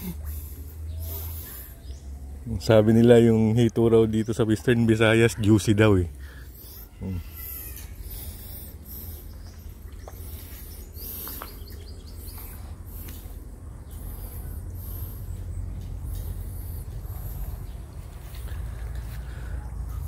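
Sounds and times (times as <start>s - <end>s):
small birds chirping: 0.0s - 20.0s
steady low rumble: 7.9s - 20.0s.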